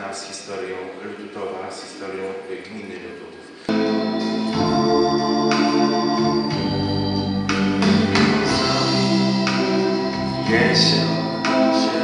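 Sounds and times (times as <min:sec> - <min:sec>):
organ keyboard chords: 0:03.5 - 0:12.0.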